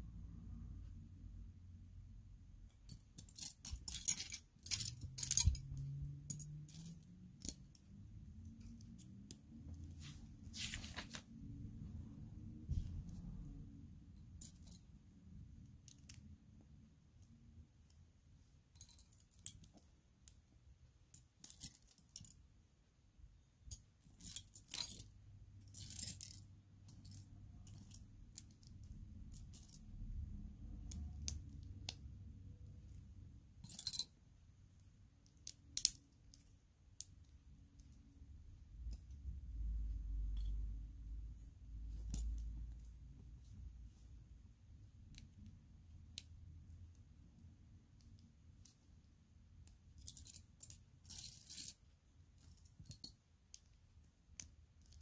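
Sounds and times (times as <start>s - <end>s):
short rustles: 9.9s - 11.3s.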